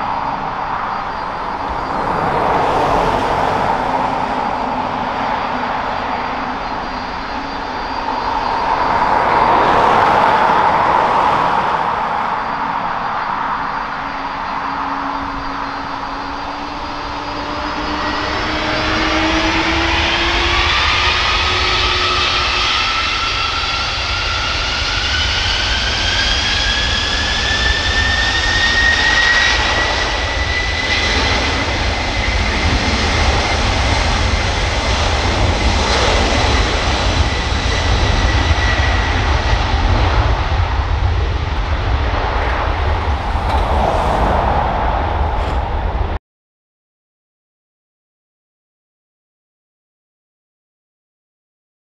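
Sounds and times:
jet engines spooling up: 0.0 - 46.2
loud jet roar: 0.0 - 46.2.

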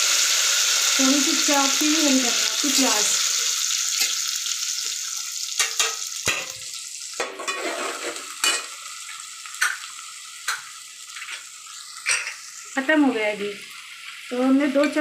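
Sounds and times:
onions sizzling in hot oil: 0.0 - 15.0
metal spoon knocking and scraping pot: 7.2 - 8.7.

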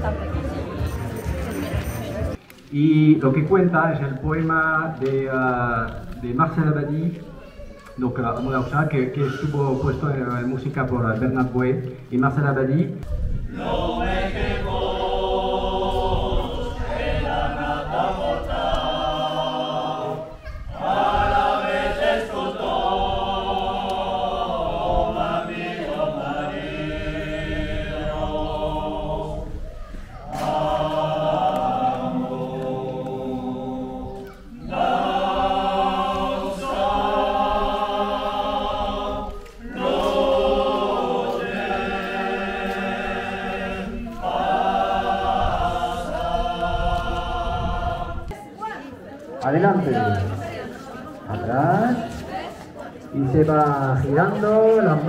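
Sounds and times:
group singing a cappella: 13.2 - 48.4, 49.8 - 53.1.

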